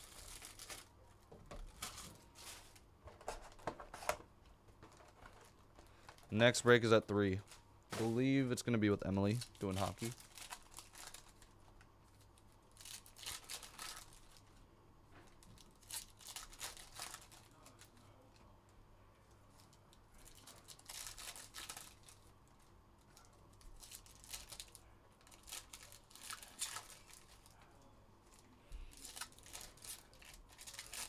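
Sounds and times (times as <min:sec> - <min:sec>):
foil wrappers torn and crinkled: 0:00.0 - 0:01.0, 0:09.2 - 0:11.5, 0:12.1 - 0:14.4, 0:15.4 - 0:18.1, 0:19.6 - 0:22.3, 0:23.2 - 0:27.5, 0:28.3 - 0:31.0.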